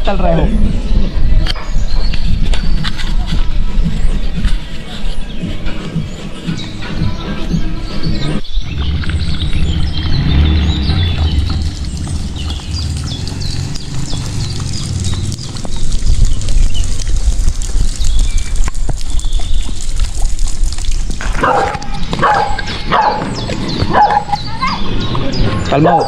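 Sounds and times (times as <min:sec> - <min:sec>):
low rumble: 0:00.0 - 0:25.8
birds chirping: 0:00.0 - 0:26.0
dog barking: 0:21.4 - 0:23.3, 0:23.9 - 0:24.4.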